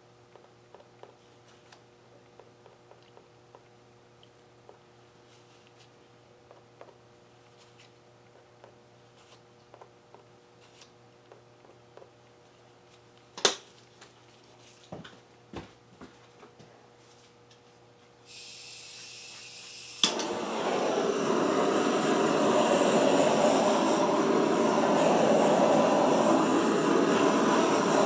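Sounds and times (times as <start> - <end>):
gas hissing: 18.3 - 28.0
torch igniting click: 19.0 - 28.0
torch flame rushing: 20.0 - 28.0.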